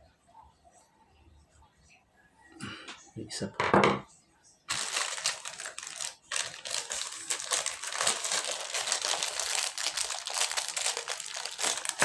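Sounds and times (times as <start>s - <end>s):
plastic bag crinkling: 4.7s - 12.0s.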